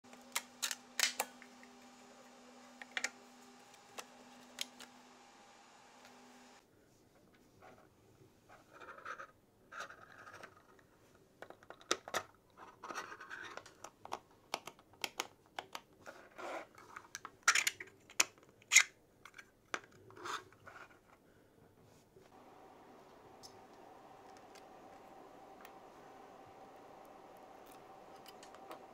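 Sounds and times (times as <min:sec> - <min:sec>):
plastic parts clicking together: 0:00.1 - 0:01.5, 0:11.4 - 0:16.0, 0:16.8 - 0:20.2.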